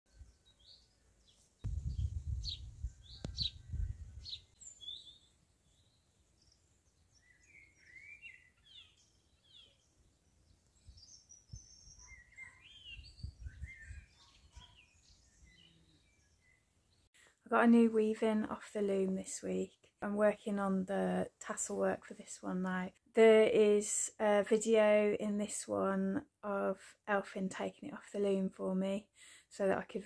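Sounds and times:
birds singing: 0.1s - 17.1s.

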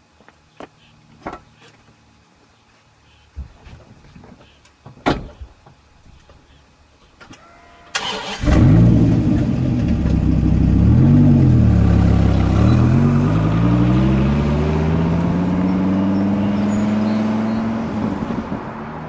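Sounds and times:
car engine starting and revving: 7.9s - 19.0s.

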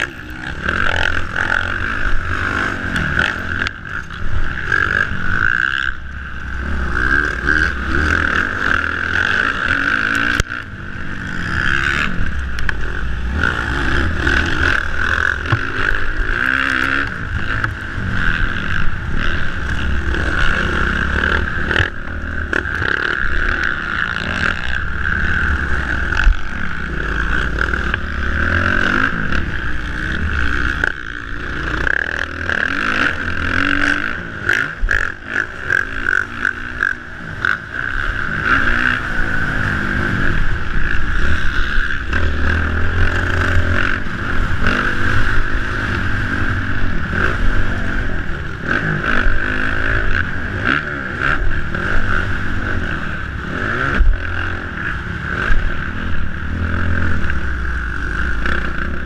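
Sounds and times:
motocross bike engine revving: 0.0s - 59.0s.

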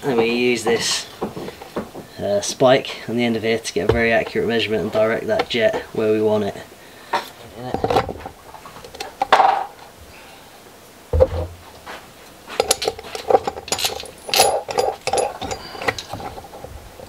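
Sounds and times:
dull thump: 3.9s - 4.2s, 11.1s - 11.6s
plastic parts clicking and rattling: 12.6s - 17.0s.

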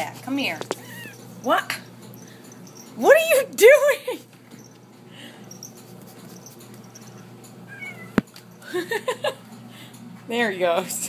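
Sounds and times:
cat chirping: 0.8s - 1.3s, 7.7s - 8.2s
cat crying: 0.8s - 1.3s, 7.7s - 8.2s.

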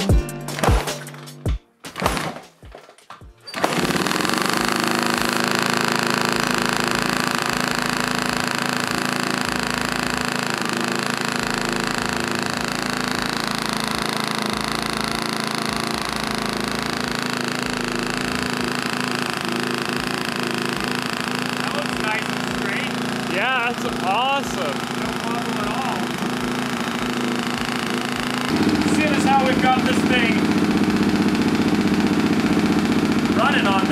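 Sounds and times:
motorcycle engine starting and idling: 2.0s - 33.9s.

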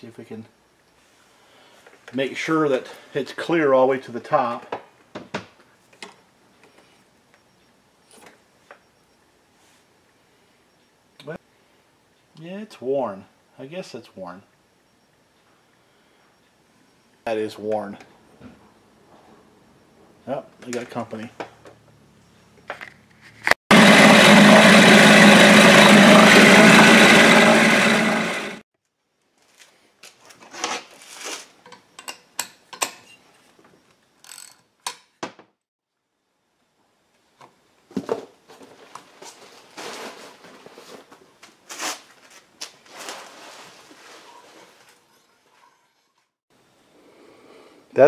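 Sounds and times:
outboard motor running: 23.7s - 28.6s.

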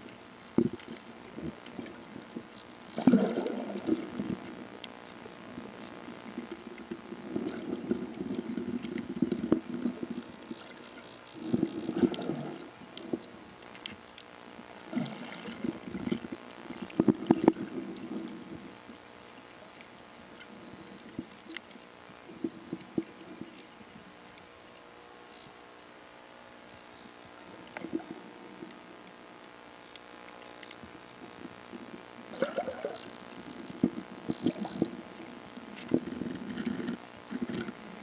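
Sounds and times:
faint high whine: 0.0s - 38.0s
underwater swimming strokes: 0.6s - 4.6s, 5.6s - 13.8s, 14.9s - 24.1s, 32.3s - 38.0s.

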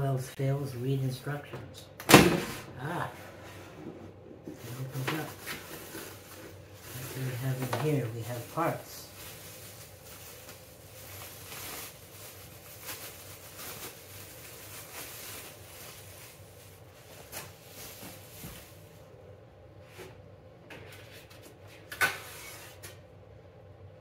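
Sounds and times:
bubble wrap rustling and crinkling: 4.5s - 19.1s.

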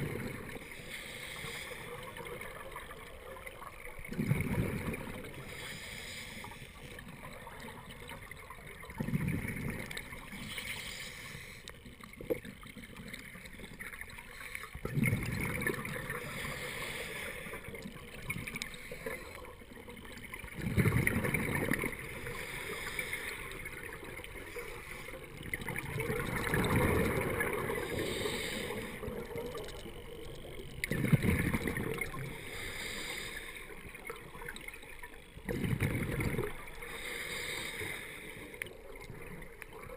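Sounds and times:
underwater hiss: 0.0s - 2.7s, 4.1s - 7.0s, 9.4s - 11.8s, 16.0s - 19.6s, 21.2s - 39.9s
underwater bubbles gurgling: 0.0s - 39.9s.

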